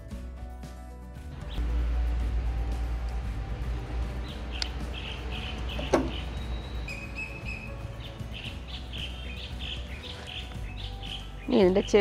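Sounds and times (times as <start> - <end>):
small birds chirping: 3.6 - 12.0.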